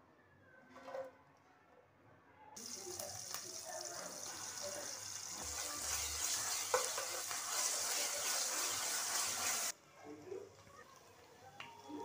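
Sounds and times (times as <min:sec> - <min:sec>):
onions sizzling in hot oil: 0:02.6 - 0:09.8
metal spoon stirring in pan: 0:03.9 - 0:09.8.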